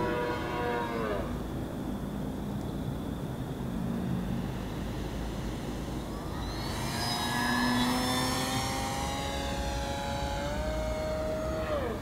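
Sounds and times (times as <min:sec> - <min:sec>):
model airplane motor whining: 0:03.5 - 0:12.0.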